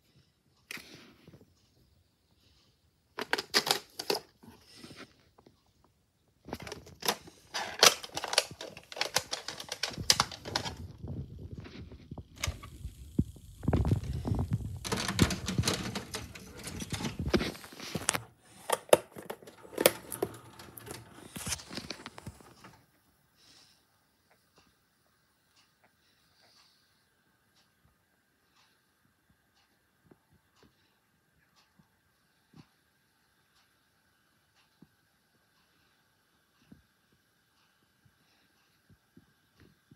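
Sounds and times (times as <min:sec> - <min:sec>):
plastic cassette case clacking: 0:03.2 - 0:04.3, 0:06.5 - 0:10.8, 0:13.8 - 0:22.5.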